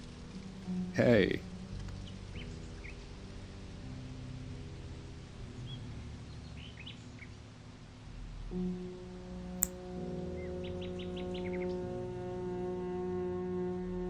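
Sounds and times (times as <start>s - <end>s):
small birds chirping: 1.9s - 3.1s, 5.4s - 7.4s, 10.4s - 11.8s.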